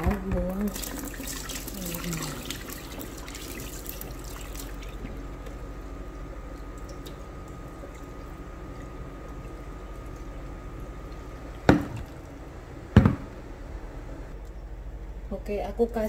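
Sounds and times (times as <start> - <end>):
steady low hum: 0.0 - 16.0
water dripping: 0.5 - 12.4
water pouring into steel sink: 0.6 - 5.0.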